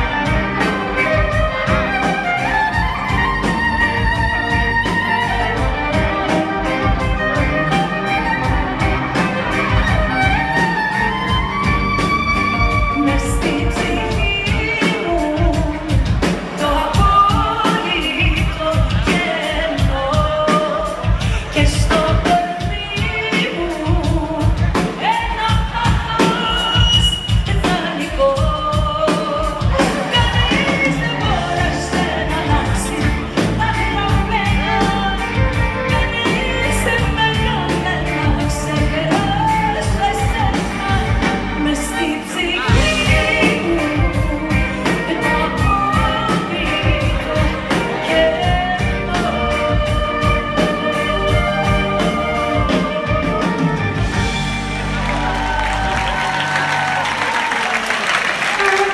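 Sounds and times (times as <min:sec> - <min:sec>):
woman singing: 0:00.0 - 0:54.4
live pop band playing: 0:00.0 - 0:58.9
steady drum beat: 0:00.0 - 0:58.9.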